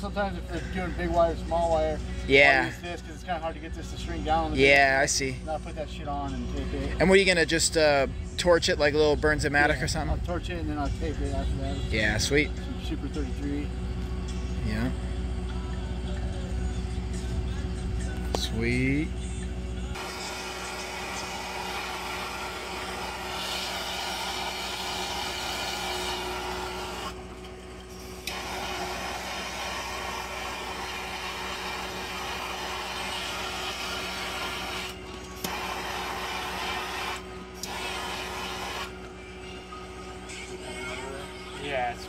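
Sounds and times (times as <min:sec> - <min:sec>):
gas torch hissing: 0:20.0 - 0:27.2, 0:27.8 - 0:39.0.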